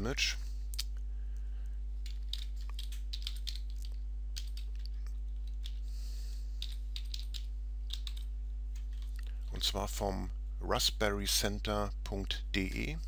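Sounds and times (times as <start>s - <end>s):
keyboard typing: 2.0s - 5.8s, 6.6s - 9.1s.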